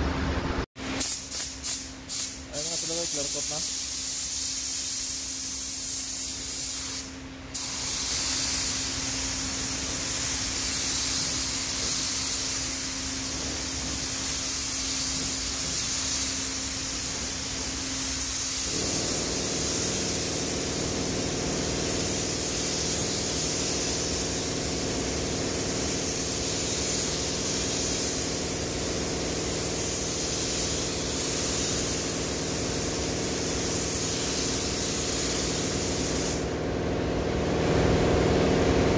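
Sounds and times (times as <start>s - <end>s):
spray gun hissing: 1.0s - 36.5s
low machine hum: 36.5s - 38.9s.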